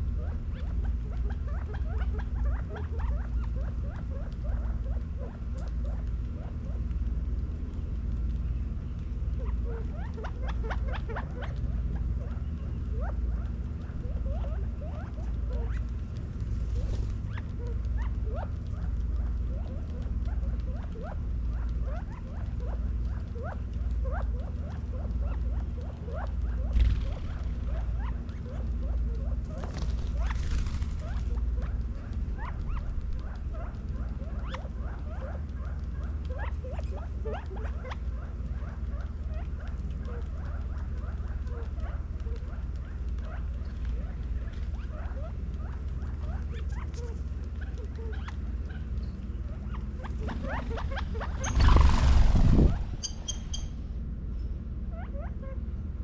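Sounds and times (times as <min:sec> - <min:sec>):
quail chirping: 0:00.0 - 0:07.0, 0:09.0 - 0:54.0, 0:54.9 - 0:55.6
steady low hum: 0:00.0 - 0:56.0
hissing rustles: 0:45.8 - 0:54.0.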